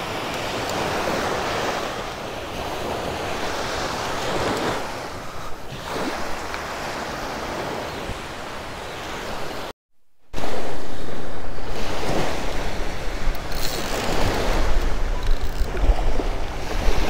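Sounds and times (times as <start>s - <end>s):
wind on microphone: 10.4s - 17.0s.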